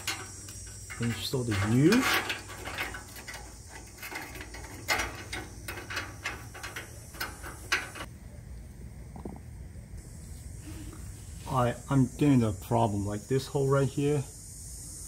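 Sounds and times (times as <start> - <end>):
metal exhaust clamp clicking: 0.0 - 8.1.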